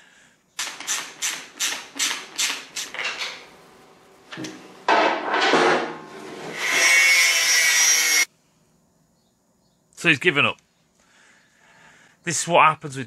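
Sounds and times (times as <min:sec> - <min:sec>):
ratchet spanner clicking: 0:00.6 - 0:03.0
angle grinder cutting steel: 0:06.2 - 0:08.3.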